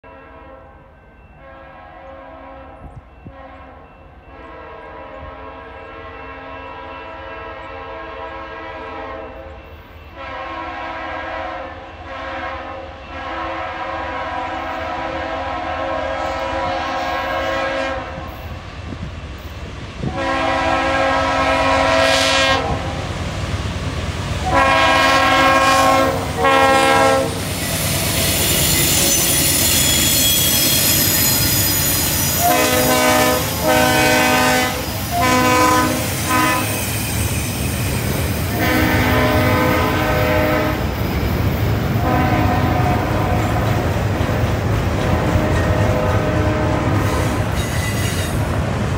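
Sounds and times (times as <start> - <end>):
locomotive air horn blasts: 0.0 - 18.4, 20.0 - 23.0, 24.4 - 27.5, 31.8 - 36.9, 38.5 - 40.9, 42.0 - 43.7, 45.1 - 48.3
wheel-on-rail roar: 9.7 - 48.9
high wheel squeal: 27.5 - 32.5, 36.0 - 38.6, 47.0 - 48.4.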